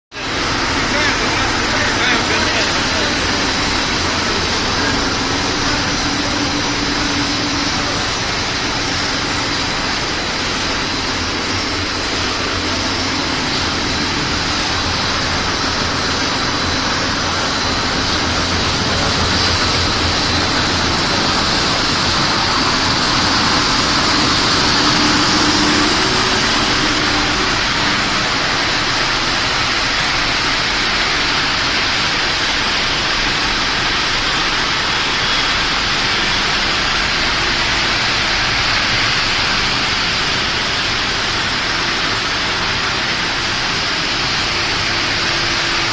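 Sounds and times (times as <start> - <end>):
electric motor hum and machine noise: 0.2 - 45.9.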